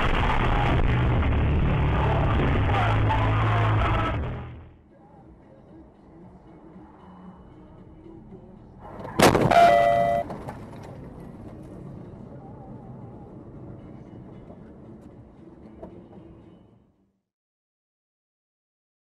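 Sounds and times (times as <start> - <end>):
road noise: 0.0 - 17.2
car crash: 8.8 - 11.8
two-note tone: 9.4 - 10.3.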